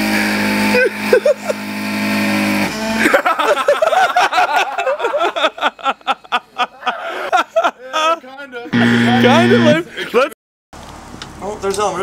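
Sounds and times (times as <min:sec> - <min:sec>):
power drill humming: 0:00.0 - 0:04.6, 0:08.7 - 0:09.8.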